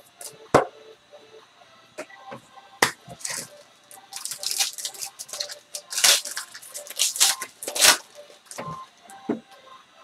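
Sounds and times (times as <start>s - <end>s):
foil pack crinkling and tearing: 3.2s - 8.7s.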